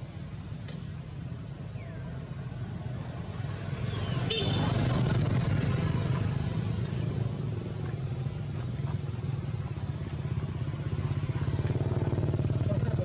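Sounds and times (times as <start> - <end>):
motorcycle engine running: 4.4 - 13.0.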